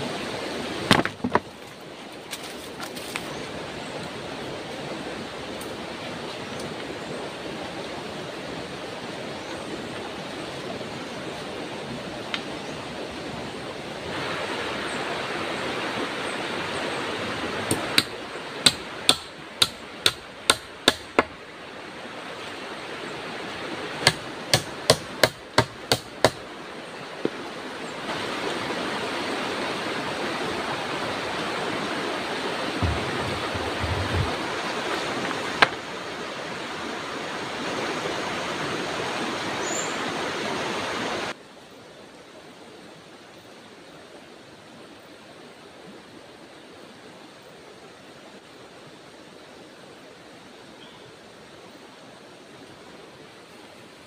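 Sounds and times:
hammer striking wooden poles: 0.9s - 1.5s, 17.7s - 21.4s, 24.0s - 26.4s
steady rushing noise: 27.8s - 39.4s.

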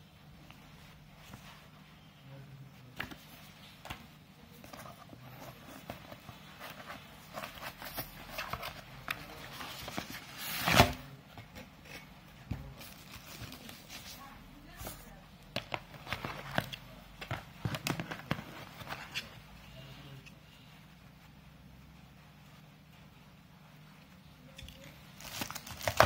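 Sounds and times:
paper and foam rustling: 12.7s - 15.2s.

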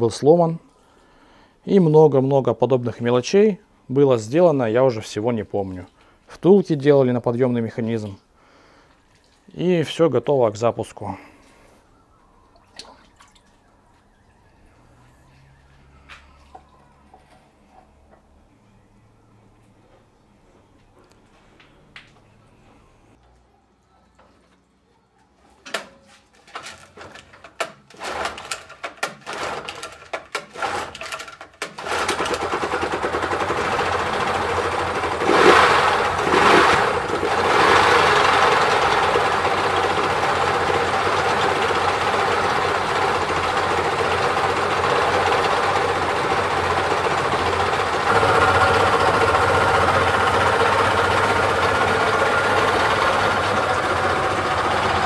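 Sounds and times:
engine revving: 31.8s - 55.0s
outboard engine starting and running: 31.8s - 55.0s.

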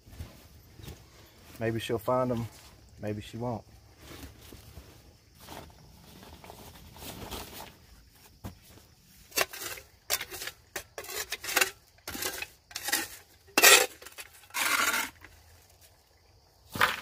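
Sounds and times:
shovel scraping charcoal and ash: 9.2s - 15.4s.

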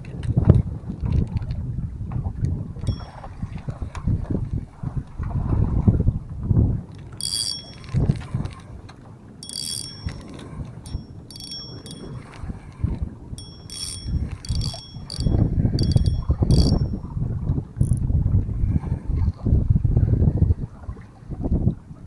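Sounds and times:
wind rumbling on microphone: 0.0s - 7.2s, 9.8s - 22.0s
fishing reel drag clicking: 2.8s - 3.1s, 7.2s - 8.2s, 9.4s - 12.3s, 13.4s - 17.0s.

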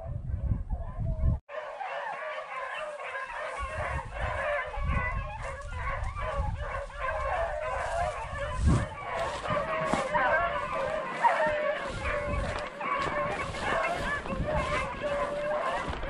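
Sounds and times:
wind buffeting microphone: 0.0s - 1.4s, 3.3s - 16.0s
pack of dogs baying: 0.0s - 16.0s.

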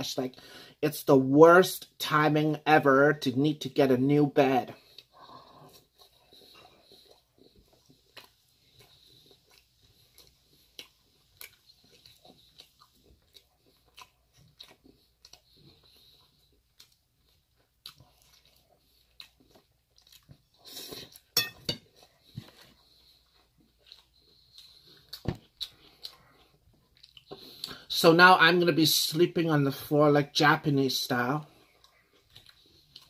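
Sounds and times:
chewing and crunching lettuce: 1.6s - 33.0s.

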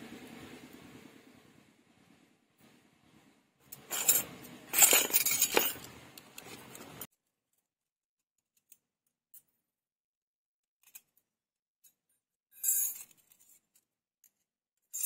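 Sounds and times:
small metal kitchenware clinking: 3.7s - 7.1s.

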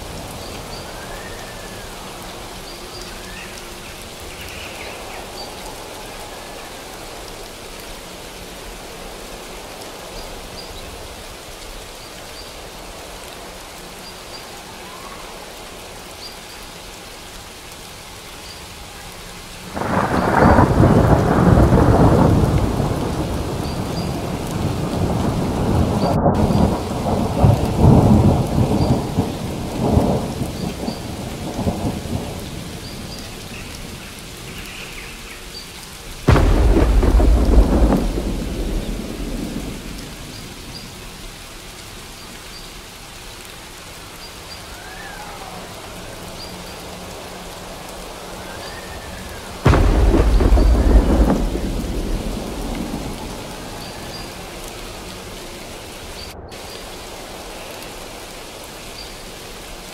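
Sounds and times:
steady rain: 0.0s - 59.9s
rolling thunder: 19.7s - 34.0s, 36.2s - 41.3s, 48.5s - 57.8s
thunderclap: 19.8s - 30.4s, 36.3s - 40.9s, 49.2s - 56.7s.

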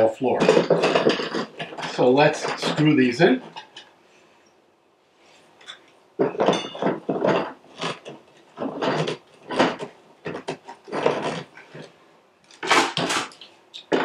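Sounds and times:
metal threads scraping and grinding: 0.0s - 4.0s, 5.6s - 12.0s.

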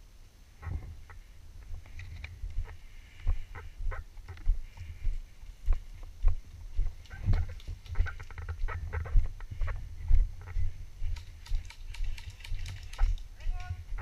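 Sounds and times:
muffled footsteps: 0.6s - 14.0s
small clicks and rustles: 1.8s - 2.5s, 6.9s - 8.6s, 11.0s - 13.8s.

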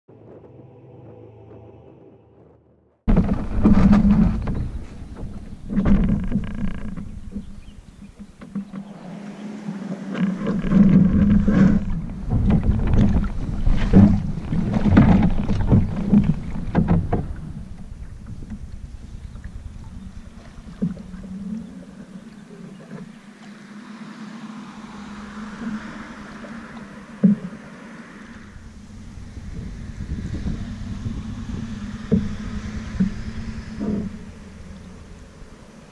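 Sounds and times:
knocks through canoe hull: 3.1s - 9.4s, 10.0s - 21.9s, 28.4s - 35.5s
canoe hull scraping and bumping: 3.1s - 23.7s, 24.7s - 35.9s
canoe paddled on calm water: 3.1s - 35.9s.

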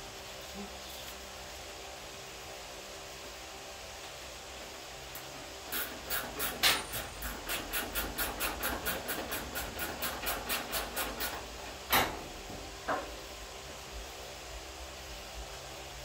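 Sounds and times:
hand tool rasping strokes: 5.7s - 11.5s.

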